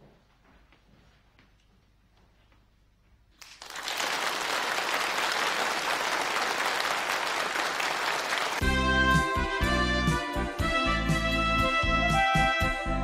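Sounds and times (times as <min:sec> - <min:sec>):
audience applauding: 0:03.4 - 0:08.6.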